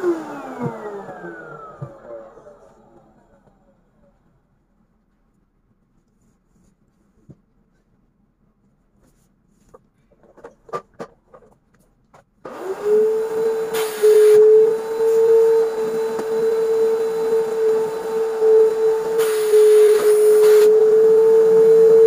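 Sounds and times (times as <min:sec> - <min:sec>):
vacuum cleaner whine and suction: 0:00.0 - 0:04.1, 0:12.4 - 0:22.0.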